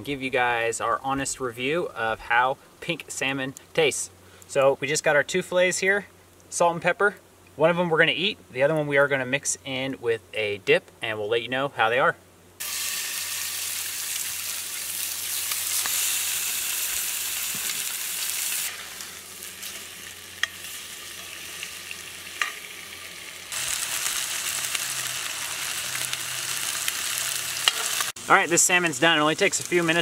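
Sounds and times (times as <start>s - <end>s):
fish sizzling in a skillet: 12.6s - 30.0s.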